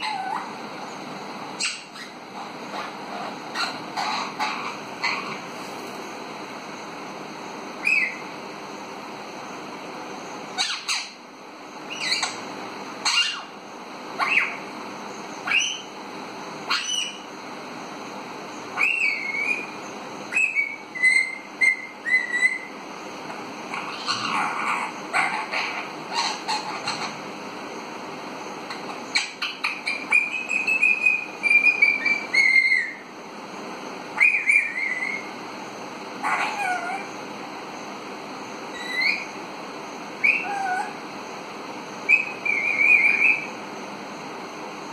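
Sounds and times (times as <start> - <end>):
parakeet whistling calls: 0.0 - 0.6, 1.6 - 5.5, 7.8 - 8.3, 10.5 - 11.2, 11.9 - 12.4, 13.0 - 13.6, 14.2 - 14.6, 15.4 - 15.9, 16.7 - 17.3, 18.7 - 22.8, 23.7 - 27.2, 28.7 - 33.1, 34.2 - 35.3, 36.2 - 37.1, 38.7 - 39.4, 40.2 - 41.0, 42.0 - 43.6
rough parakeet call: 0.0 - 0.6, 1.6 - 5.5, 23.7 - 27.2, 36.2 - 37.1, 40.2 - 41.0, 42.1 - 43.6.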